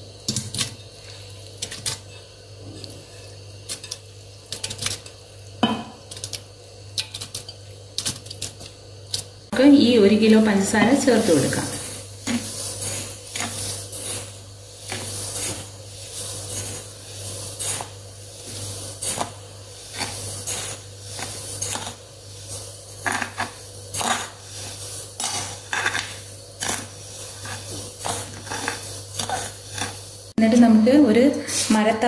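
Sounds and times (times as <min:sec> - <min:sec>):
sugar pouring hiss: 0:00.0 - 0:32.0
spoon scraping bowl: 0:23.0 - 0:30.0.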